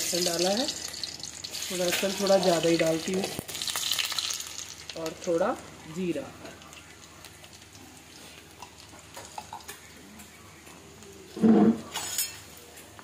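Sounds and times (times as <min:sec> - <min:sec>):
frying in hot oil sizzle: 0:00.0 - 0:13.0
sharp metallic scrape: 0:11.4 - 0:12.4.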